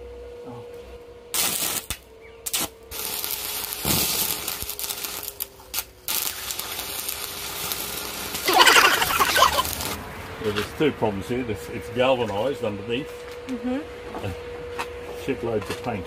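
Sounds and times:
arc welding crackling: 0:01.3 - 0:10.1.

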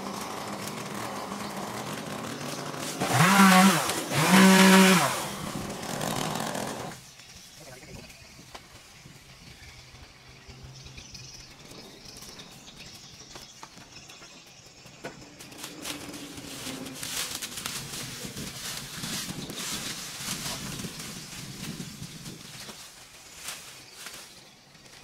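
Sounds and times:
dry leaves rustling and crackling: 0:15.4 - 0:25.0.

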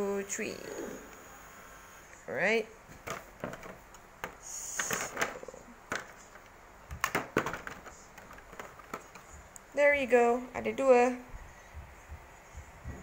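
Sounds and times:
plastic tray clicking and crinkling: 0:03.0 - 0:09.3.

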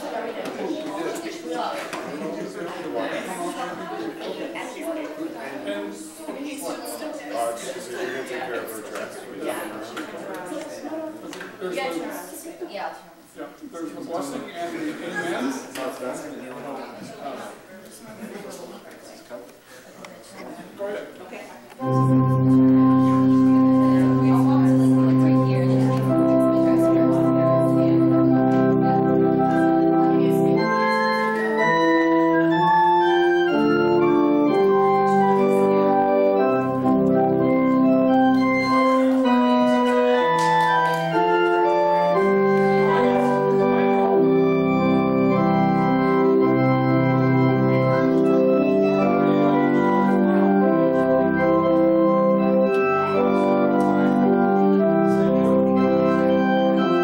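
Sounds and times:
organ music: 0:21.8 - 0:57.0.

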